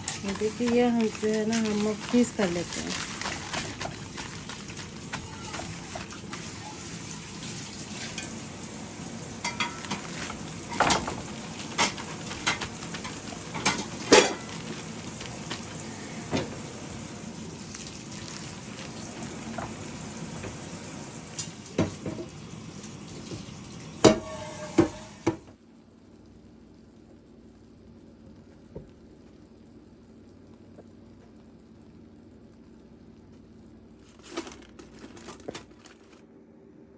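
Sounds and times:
utensils and dishes clinking: 0:00.0 - 0:08.4, 0:09.4 - 0:14.8.

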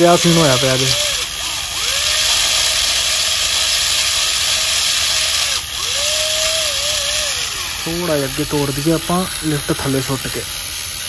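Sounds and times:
small electric motors whining: 0:00.0 - 0:11.0
tiller blades churning dry soil: 0:00.0 - 0:11.0.

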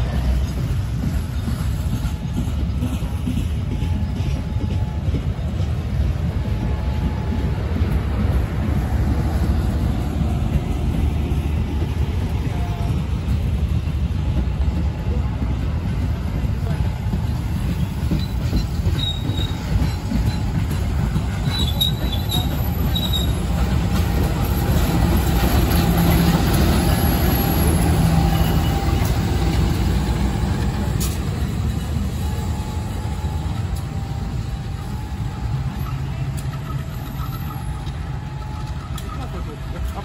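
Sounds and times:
diesel locomotive engine: 0:00.0 - 0:40.0
steel wheels rumbling on rails: 0:00.0 - 0:40.0
wheel squeals: 0:17.6 - 0:39.6.

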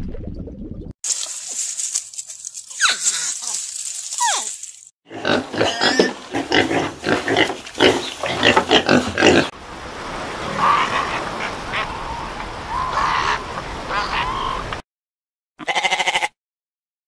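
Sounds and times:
piglets grunting: 0:05.1 - 0:09.5
seal calls: 0:10.5 - 0:14.8.

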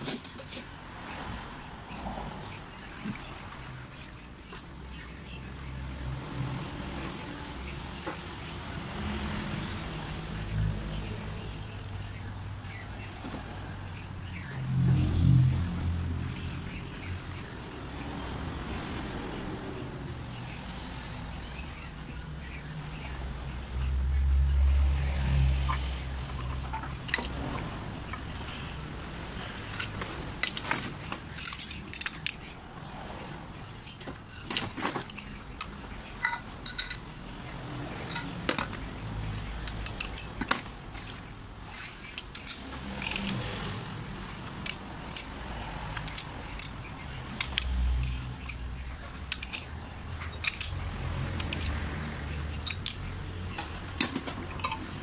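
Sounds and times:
steel parts clinking on workbench: 0:27.1 - 0:27.4, 0:34.5 - 0:37.1, 0:38.0 - 0:38.8, 0:39.6 - 0:40.6, 0:54.0 - 0:54.9.

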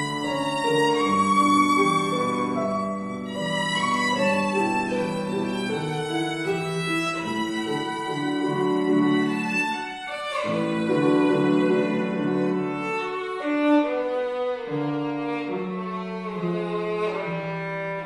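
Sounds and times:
piano accompaniment: 0:00.0 - 0:18.0
solo violin melody: 0:00.0 - 0:18.0.

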